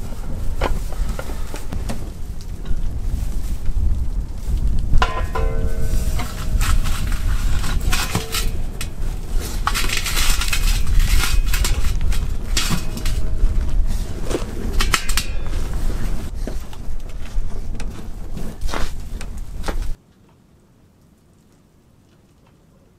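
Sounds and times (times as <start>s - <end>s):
steady low rumble: 0.0s - 20.0s
wood fire crackling and popping: 0.0s - 20.0s
metal pot ringing on fire ring: 5.0s - 16.2s.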